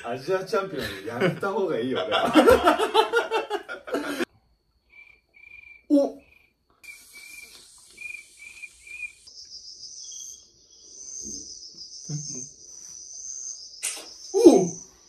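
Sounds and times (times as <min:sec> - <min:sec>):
cricket chirping: 0:00.0 - 0:15.0
cricket trilling: 0:00.0 - 0:15.0.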